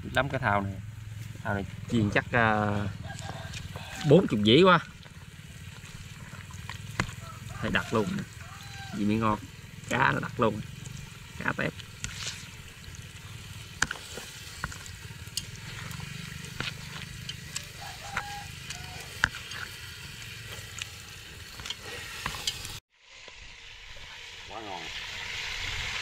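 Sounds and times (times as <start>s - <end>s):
deep-frying sizzle: 0.0s - 26.0s
sharp crackling pops: 4.8s - 23.4s.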